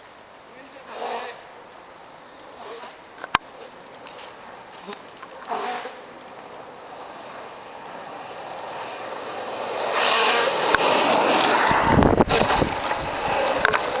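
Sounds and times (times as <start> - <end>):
skateboard wheels rolling on asphalt: 0.0 - 14.0
wind rumble on microphone: 10.7 - 14.0.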